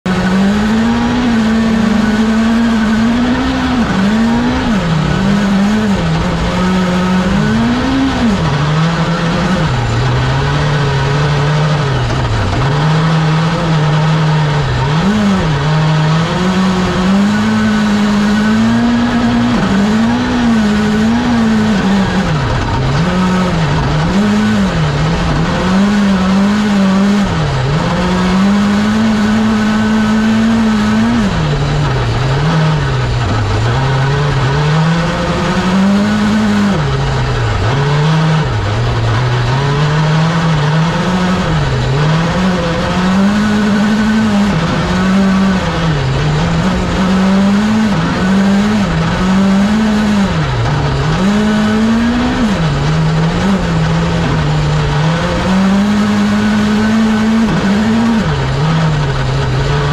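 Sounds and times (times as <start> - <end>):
rally car engine revving: 0.0 - 59.9.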